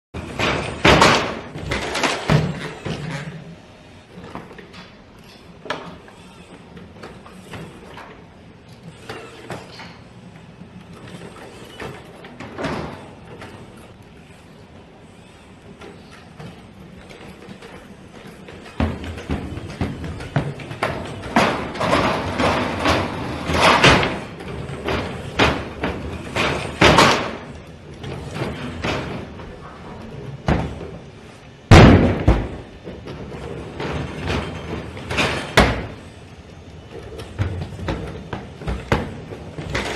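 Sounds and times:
robot banging on metal scaffolding: 31.7s - 32.8s.

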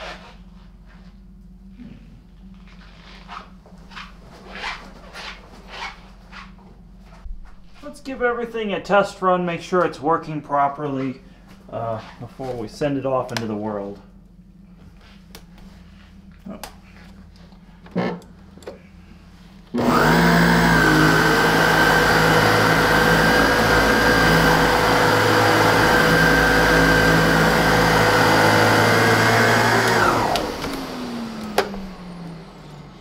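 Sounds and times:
vacuum cleaner motor whine: 19.6s - 33.0s.

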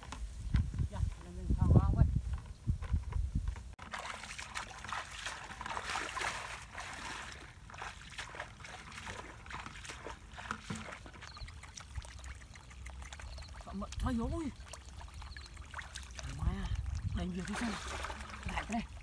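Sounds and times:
feet splashing through water: 3.8s - 19.0s.

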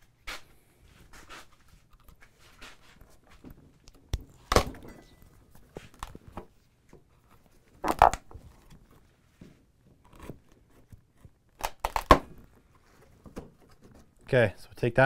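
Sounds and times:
wood cracking: 3.8s - 4.8s, 7.8s - 9.0s, 10.0s - 12.6s.

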